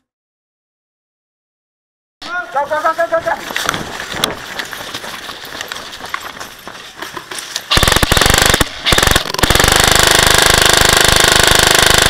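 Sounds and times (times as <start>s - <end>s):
airsoft gun firing full-auto: 7.7s - 12.0s.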